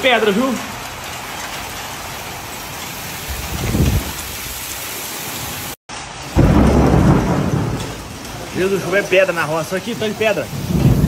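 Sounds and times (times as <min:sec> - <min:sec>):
heavy rain and hail: 0:00.0 - 0:11.0
low thunder rumble: 0:03.2 - 0:04.6, 0:06.4 - 0:11.0.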